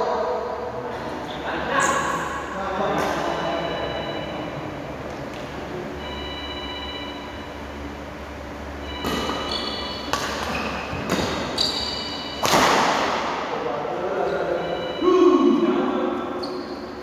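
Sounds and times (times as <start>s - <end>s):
rackets hitting shuttlecock: 9.0s - 13.4s
shoes squeaking on wooden floor: 9.3s - 12.2s.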